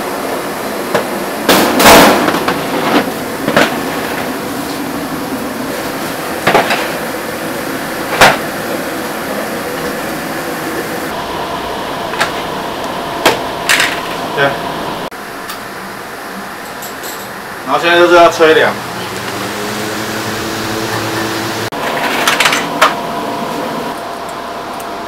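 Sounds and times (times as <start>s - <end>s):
steam rushing out: 0.0s - 15.1s, 17.7s - 22.3s
steady background noise: 0.0s - 25.0s.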